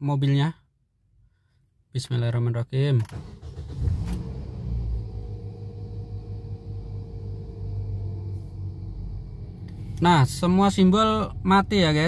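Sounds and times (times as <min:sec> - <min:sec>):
car engine starting and idling: 0:03.0 - 0:12.0.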